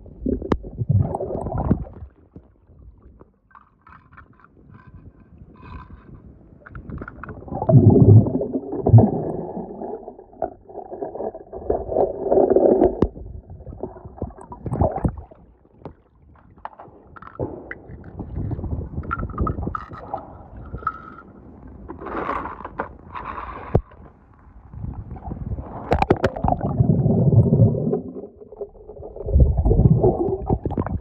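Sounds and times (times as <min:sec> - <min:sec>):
water splashing and gurgling: 0:00.0 - 0:03.4, 0:06.8 - 0:16.6, 0:25.7 - 0:31.0.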